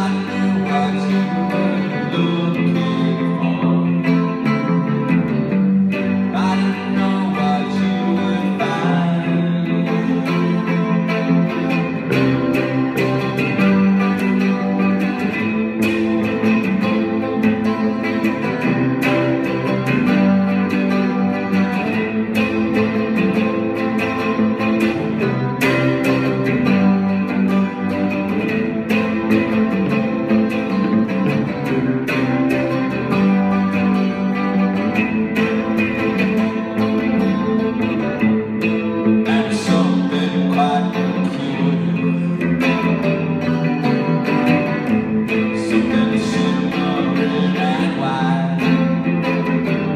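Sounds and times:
electric bass playing: 0.0 - 49.9
electric guitar strumming: 0.0 - 49.9.

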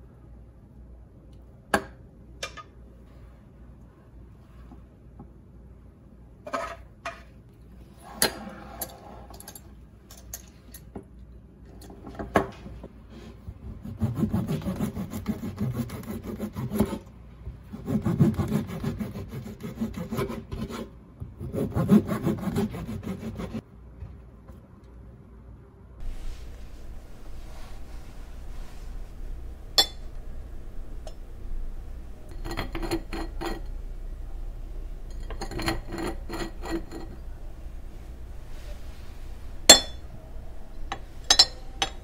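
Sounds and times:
knife sawing through bread crust: 13.8 - 17.0, 17.7 - 23.6.

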